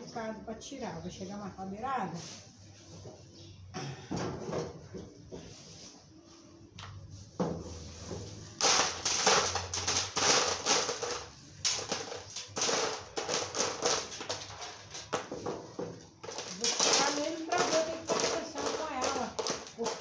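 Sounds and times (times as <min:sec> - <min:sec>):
pebbles clattering and crunching: 0:08.6 - 0:15.3, 0:16.1 - 0:20.0.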